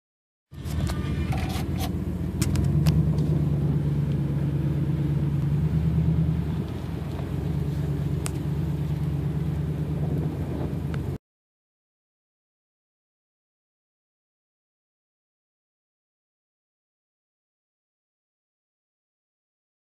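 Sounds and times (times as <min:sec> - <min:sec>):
car engine and road noise: 0:00.5 - 0:11.2.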